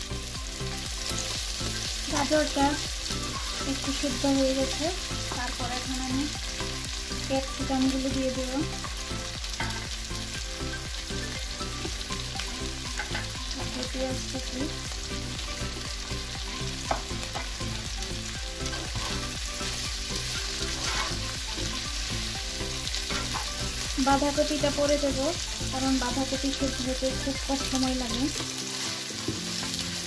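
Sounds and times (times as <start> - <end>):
chicken and vegetables sizzling: 0.0 - 30.0
spatula stirring in pan: 18.6 - 21.7.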